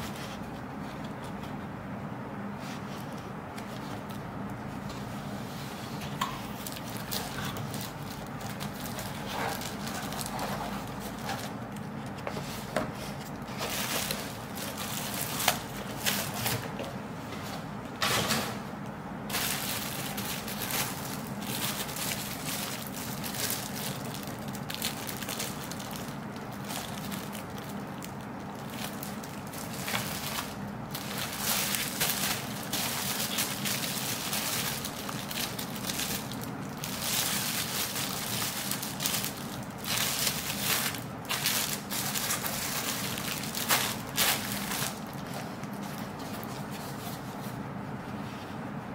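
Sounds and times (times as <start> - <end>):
plastic bag crinkling: 6.5 - 12.2, 13.3 - 16.6, 19.3 - 47.2.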